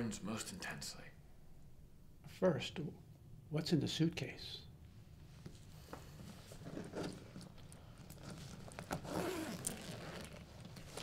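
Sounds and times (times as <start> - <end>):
rustling: 5.5 - 11.0
suitcase zipper scraping: 8.2 - 11.0.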